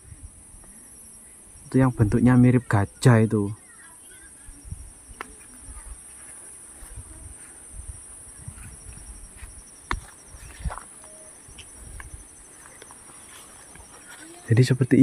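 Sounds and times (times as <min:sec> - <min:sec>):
footsteps thudding: 0:08.4 - 0:10.9.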